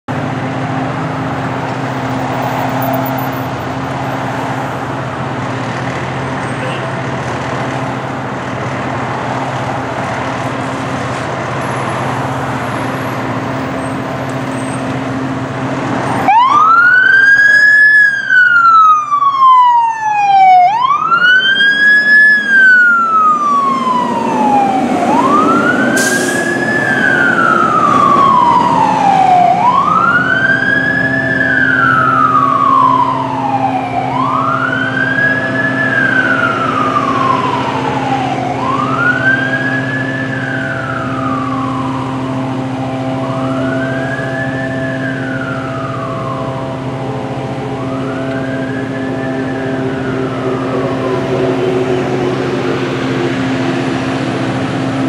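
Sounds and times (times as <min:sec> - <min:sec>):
fire engine low hum: 0:00.1 - 0:55.0
siren wailing: 0:11.6 - 0:55.0.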